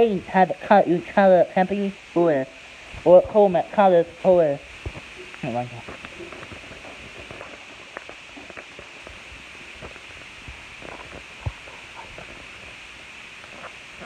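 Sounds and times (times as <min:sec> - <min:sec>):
steady hiss: 0:00.0 - 0:14.0
plastic sheet rustling: 0:04.8 - 0:12.8.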